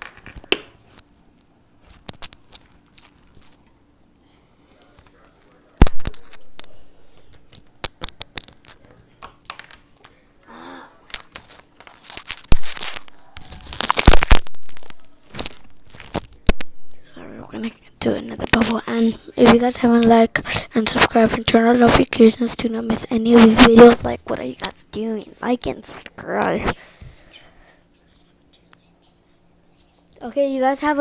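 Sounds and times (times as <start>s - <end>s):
slime crackling and popping: 11.8s - 16.8s.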